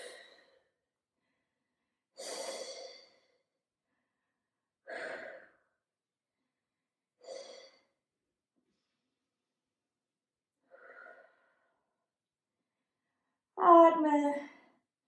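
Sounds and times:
woman breathing: 0:00.0 - 0:05.8, 0:07.2 - 0:08.0, 0:10.6 - 0:12.0.

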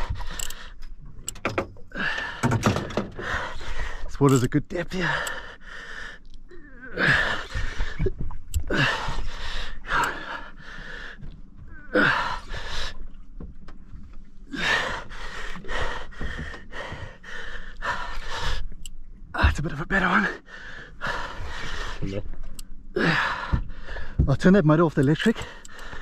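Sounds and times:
man breathing hard: 0:01.9 - 0:04.1, 0:05.0 - 0:06.3, 0:08.6 - 0:11.3, 0:14.5 - 0:18.8, 0:20.4 - 0:22.1, 0:23.0 - 0:24.2, 0:25.4 - 0:26.0.

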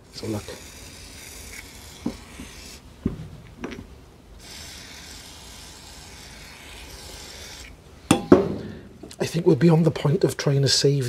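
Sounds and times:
gloved hands rubbing metal: 0:00.2 - 0:02.9.

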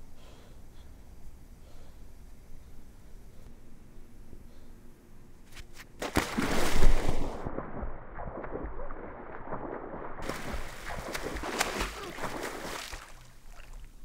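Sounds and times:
body splashing into water: 0:06.0 - 0:13.9
water churning at surface: 0:06.3 - 0:14.0.

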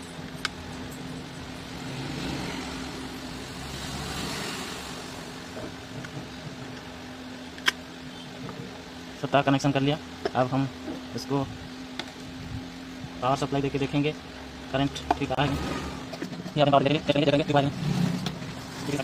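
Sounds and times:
steady low hum: 0:00.0 - 0:19.0
vehicle passing by: 0:01.4 - 0:05.8, 0:15.3 - 0:16.1.

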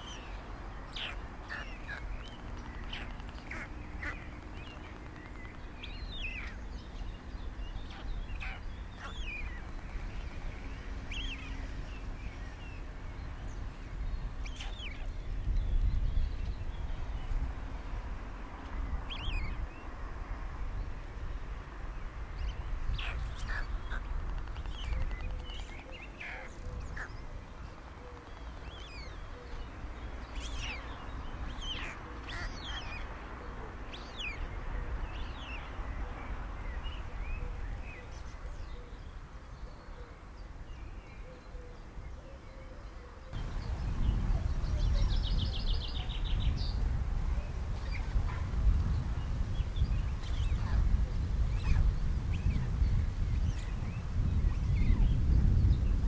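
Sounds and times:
birds chirping: 0:00.0 - 0:17.4, 0:22.4 - 0:33.1, 0:41.8 - 0:50.8.

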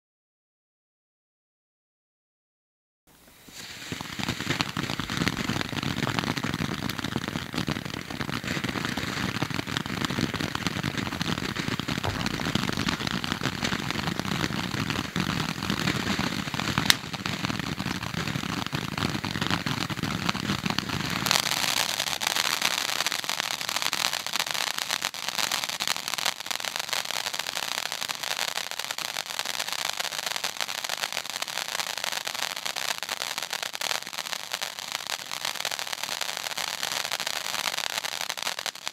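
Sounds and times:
firework fountain crackling: 0:03.1 - 0:38.9
firework sharp crack: 0:03.3 - 0:25.9.

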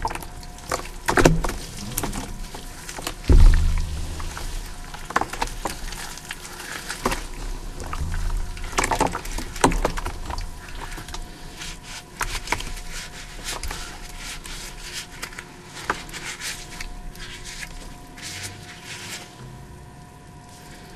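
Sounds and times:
wet chalk squelching and crackling: 0:00.0 - 0:19.4
water splashing: 0:01.2 - 0:10.9.

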